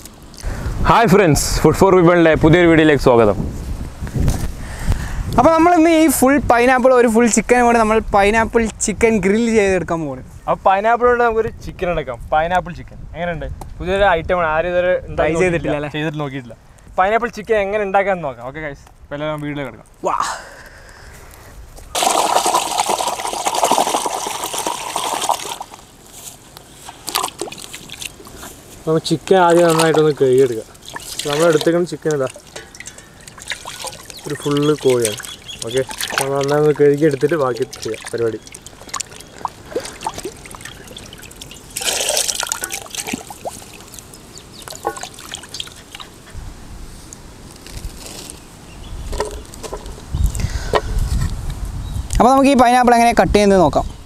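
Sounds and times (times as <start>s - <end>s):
water gushing and splashing: 21.9s - 26.0s, 26.9s - 28.6s, 29.3s - 46.2s.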